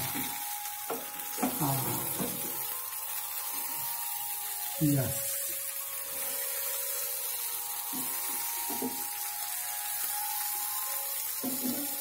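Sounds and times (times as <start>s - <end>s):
fish sizzling in a pan: 0.0s - 12.0s
spatula scraping and knocking pan: 11.4s - 12.0s.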